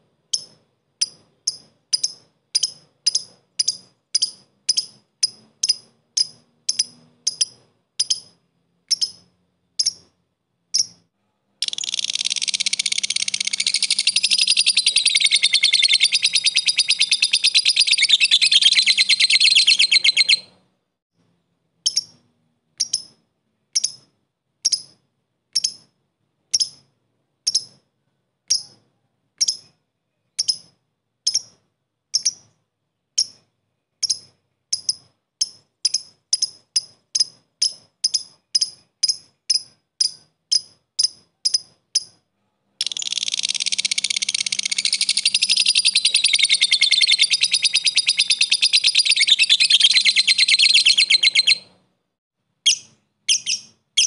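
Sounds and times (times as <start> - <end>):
lovebird chattering trill: 0.3 - 10.1, 10.7 - 20.6, 21.8 - 22.2, 22.8 - 23.2, 25.6 - 25.9, 26.5 - 26.8, 29.4 - 32.5, 33.2 - 33.4, 34.0 - 42.2, 42.8 - 51.7, 52.7 - 54.0
lovebird short sharp chirps: 11.6 - 20.5, 42.8 - 51.7, 52.7 - 54.0.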